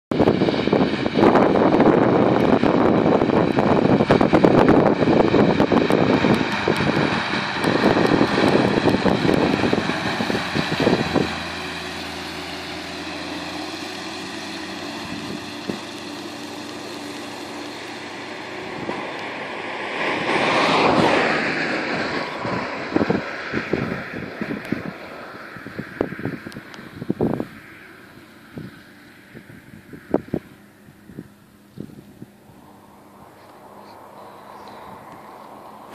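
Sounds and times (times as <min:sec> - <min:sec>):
tractor diesel engine running: 0:00.1 - 0:35.9
wind buffeting microphone: 0:00.1 - 0:35.9.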